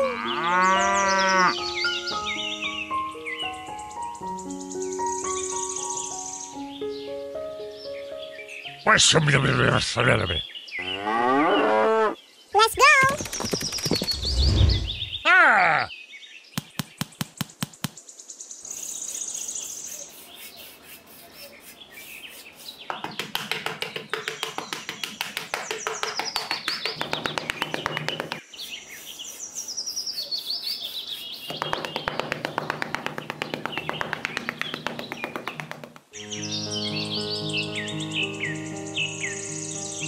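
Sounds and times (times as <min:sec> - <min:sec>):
songbirds chirping: 0:00.0 - 0:40.0
quick even ticking: 0:22.9 - 0:28.4, 0:31.5 - 0:36.1.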